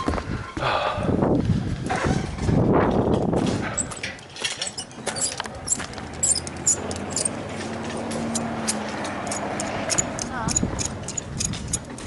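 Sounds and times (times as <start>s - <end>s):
carabiners clicking and clinking: 3.6s - 12.0s.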